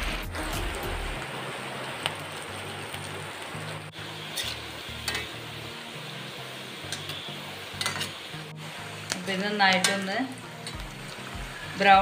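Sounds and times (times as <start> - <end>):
food sizzling in hot oil: 0.0 - 12.0
spoon clinking against pan: 7.8 - 8.2.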